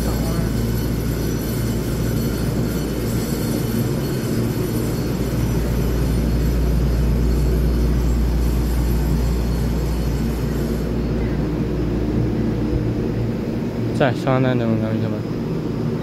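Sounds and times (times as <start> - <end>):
electric train hum and rumble: 0.0 - 16.0.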